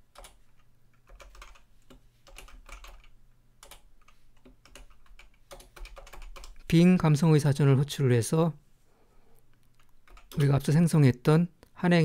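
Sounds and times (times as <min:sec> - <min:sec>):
computer keyboard typing: 0:00.1 - 0:06.7, 0:09.7 - 0:10.7.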